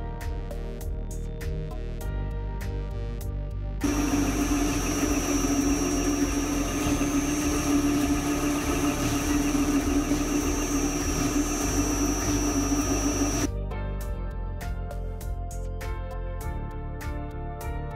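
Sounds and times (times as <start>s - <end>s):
metal lathe humming and whining: 3.8s - 13.5s.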